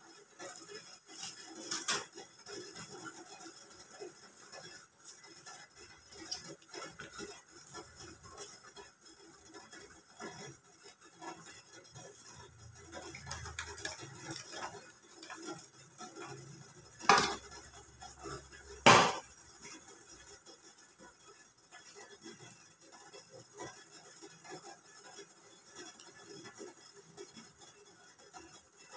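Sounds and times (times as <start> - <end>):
loud metal clanks: 18.9 - 19.3.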